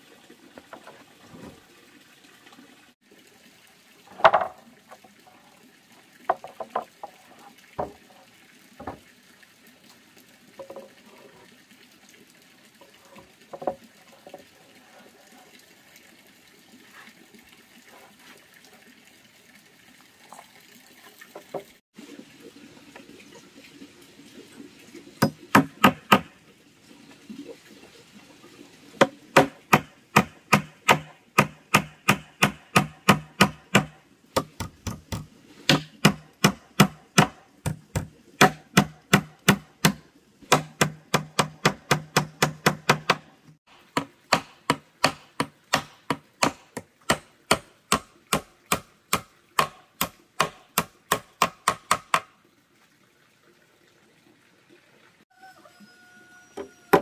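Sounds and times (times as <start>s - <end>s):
hand tool striking wood: 25.2s - 26.3s, 29.4s - 43.3s, 43.9s - 52.3s.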